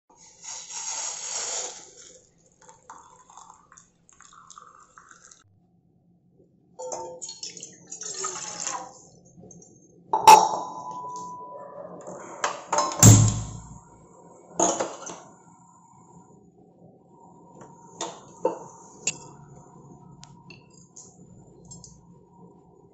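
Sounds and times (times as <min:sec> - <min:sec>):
water poured into saucepan: 0:01.7 - 0:05.4.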